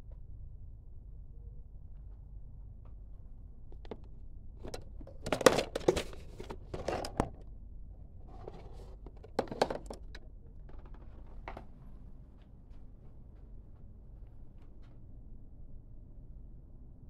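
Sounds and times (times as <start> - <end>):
handling rustling with clicks: 3.8 - 7.4.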